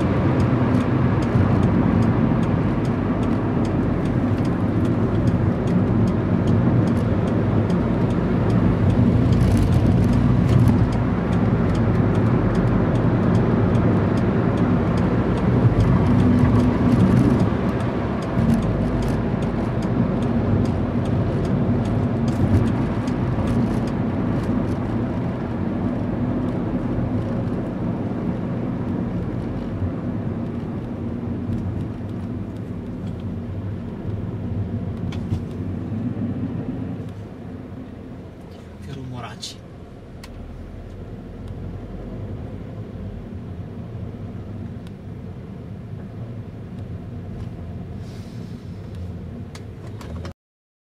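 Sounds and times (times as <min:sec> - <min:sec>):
car engine running under load: 0:00.0 - 0:50.3
road and wind noise: 0:00.0 - 0:50.4.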